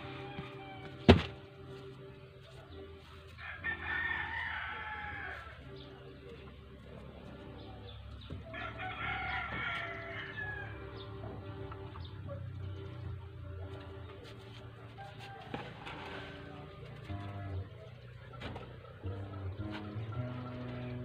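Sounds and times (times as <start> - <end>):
rooster crowing: 0.0 - 1.1, 3.4 - 5.6, 8.4 - 11.0
steady low hum: 0.0 - 21.0.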